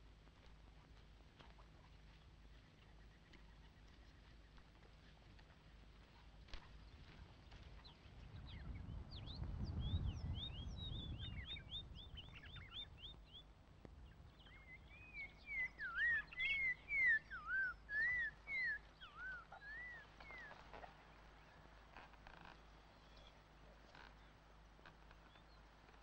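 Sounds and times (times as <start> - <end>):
slurred whistled bird notes: 14.5 - 20.6.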